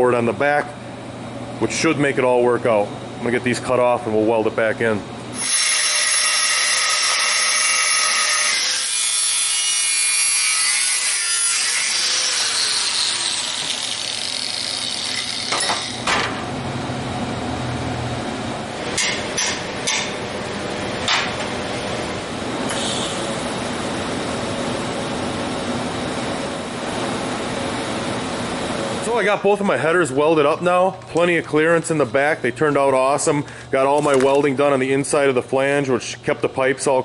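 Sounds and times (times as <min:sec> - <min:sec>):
angle grinder cutting steel: 0:05.4 - 0:16.0.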